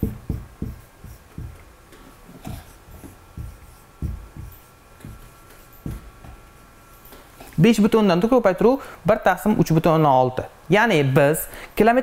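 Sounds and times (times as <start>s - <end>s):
marker knocking on whiteboard: 0.0s - 1.7s, 2.3s - 6.4s
faint marker scratching: 0.0s - 6.1s.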